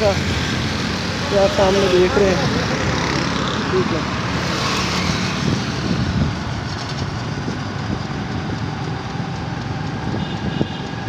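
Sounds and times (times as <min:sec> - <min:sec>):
motorbike road noise: 0:00.0 - 0:11.0
traffic rumble: 0:00.0 - 0:11.0
wind noise: 0:04.4 - 0:09.3.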